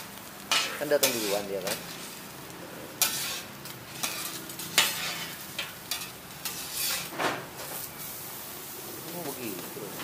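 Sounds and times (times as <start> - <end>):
food sizzling on a griddle: 0.0 - 10.0
metal spatula scraping and knocking: 4.0 - 7.3.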